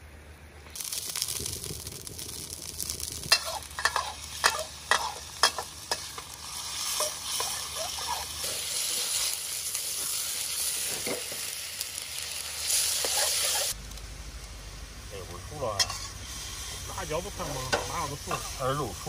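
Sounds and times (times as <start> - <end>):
food sizzling in hot oil: 0.7 - 19.0
metal spatula scraping wok: 3.2 - 11.3, 15.8 - 16.9.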